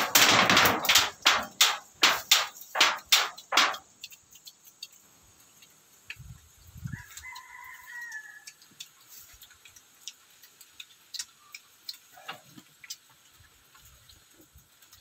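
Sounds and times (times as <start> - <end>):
rooster crowing: 6.9 - 8.6.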